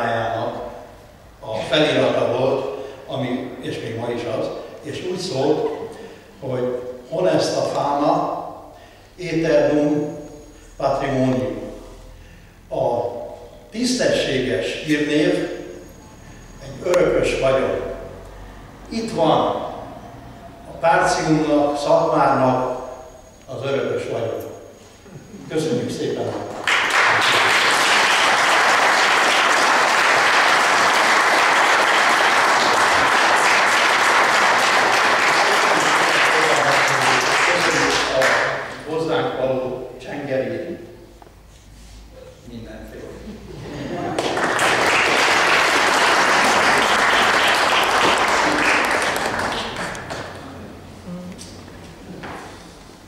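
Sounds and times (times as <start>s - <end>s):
audience applauding: 26.5s - 38.8s, 44.0s - 50.5s.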